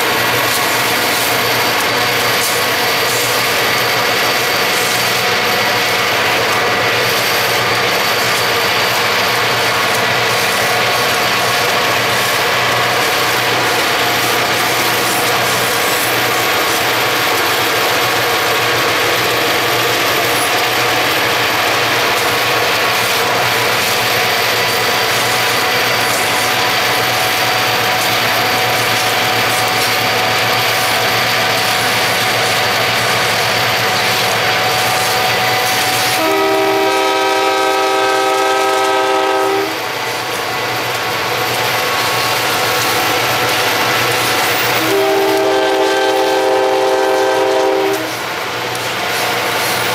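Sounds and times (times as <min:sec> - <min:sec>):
locomotive air horn blast: 0:36.1 - 0:39.8, 0:44.8 - 0:48.2.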